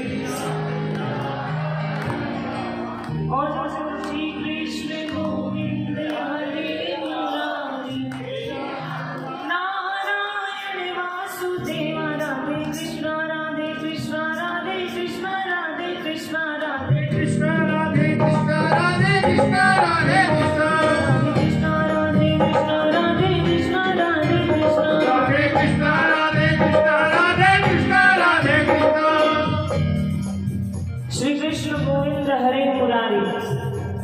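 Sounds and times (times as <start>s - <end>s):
low musical accompaniment: 0.0s - 9.7s
devotional song with accompaniment: 0.0s - 34.0s
clapping along: 1.9s - 3.3s, 4.0s - 4.3s, 5.0s - 5.4s, 6.0s - 7.5s, 8.1s - 8.4s.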